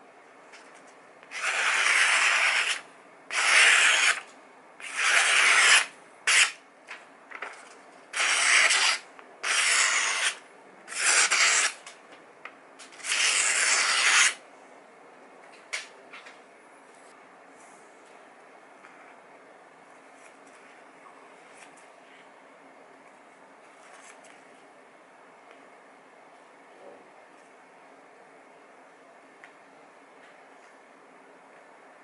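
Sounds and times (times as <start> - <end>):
knife slicing paper: 1.3 - 6.6, 8.1 - 11.8, 12.9 - 14.4.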